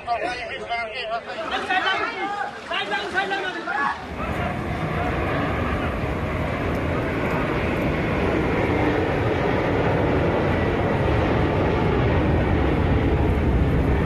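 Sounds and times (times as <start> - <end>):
fast-flowing floodwater rushing: 1.2 - 9.4.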